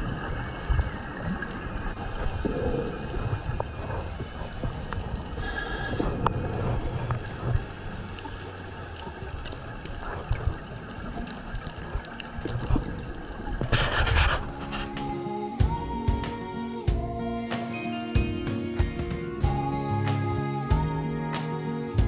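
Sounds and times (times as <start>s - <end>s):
low rumbling: 0.0s - 15.0s
muffled underwater wash: 0.0s - 15.0s.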